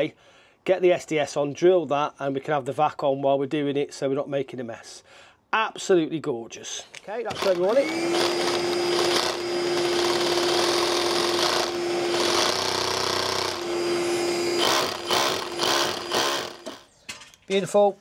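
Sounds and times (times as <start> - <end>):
vacuum humming: 7.3 - 16.8
hammer drill boring into brick: 7.3 - 16.9.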